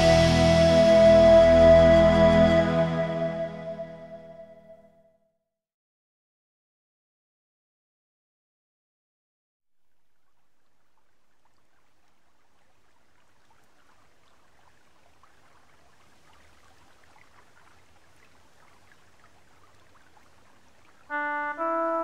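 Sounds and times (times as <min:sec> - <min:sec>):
instrumental music with held chords: 0:00.0 - 0:04.6, 0:21.1 - 0:22.0
faint steady hiss: 0:09.7 - 0:22.0
light crackle: 0:09.8 - 0:21.2.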